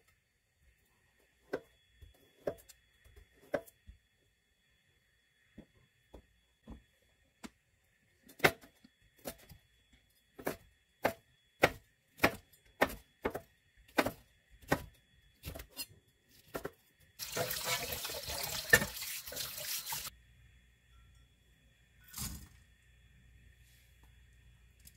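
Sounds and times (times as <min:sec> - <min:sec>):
knife chopping on wooden board: 0:10.4 - 0:15.7.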